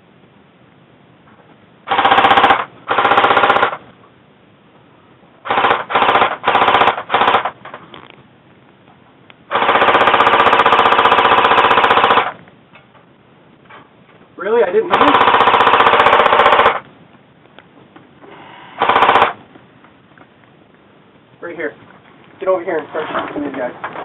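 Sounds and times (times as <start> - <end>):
airsoft gun firing full-auto bursts: 1.9 - 3.8, 5.5 - 7.6, 9.5 - 12.4, 14.9 - 16.8, 18.8 - 19.4.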